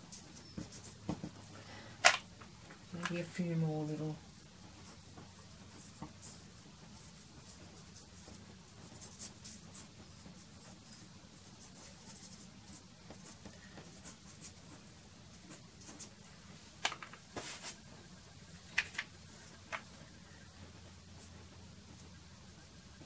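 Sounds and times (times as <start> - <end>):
pastel scratching on paper: 4.6 - 16.4, 17.3 - 18.2.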